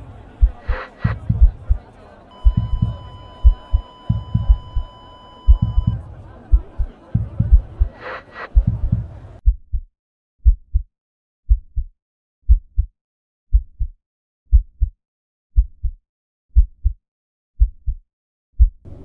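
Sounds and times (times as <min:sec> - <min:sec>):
heartbeat thumps: 0:00.0 - 0:01.8, 0:02.4 - 0:10.9, 0:11.5 - 0:11.9, 0:12.5 - 0:12.9, 0:13.5 - 0:15.0, 0:15.6 - 0:16.0, 0:16.6 - 0:17.0, 0:17.6 - 0:18.0, 0:18.6 - 0:18.8
muffled noise: 0:00.0 - 0:09.4.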